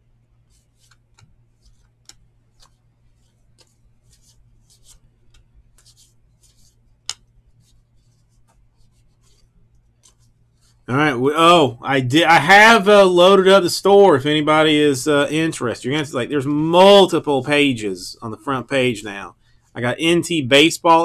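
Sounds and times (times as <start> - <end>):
trading cards flicking: 0.5 - 10.8.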